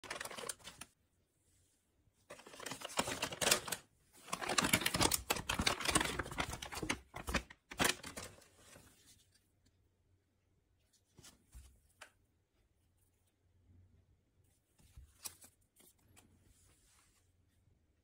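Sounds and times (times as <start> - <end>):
paper pouches rustling: 0.0 - 0.9, 2.3 - 8.9.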